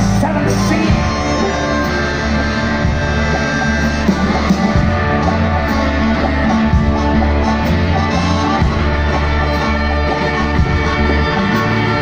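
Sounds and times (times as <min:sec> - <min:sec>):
blues band playing: 0:00.0 - 0:12.0.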